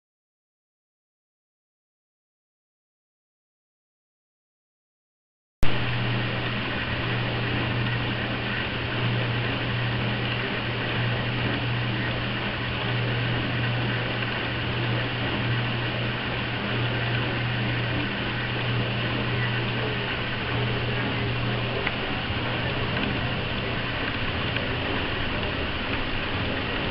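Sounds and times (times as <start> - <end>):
electric fan whirring: 5.6 - 26.9.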